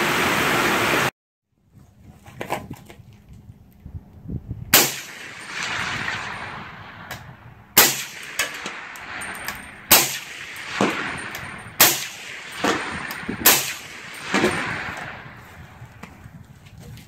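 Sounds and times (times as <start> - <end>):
rifle shots: 4.7 - 16.0
distant metallic clang of target: 4.8 - 15.4.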